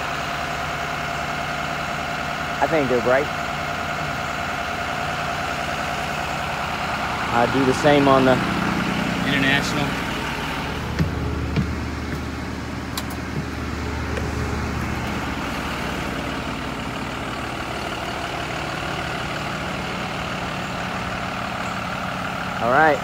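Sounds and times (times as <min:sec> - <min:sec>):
diesel bus engines idling: 0:00.0 - 0:23.0
deep low hum: 0:04.8 - 0:22.6
light knocks: 0:10.9 - 0:12.3.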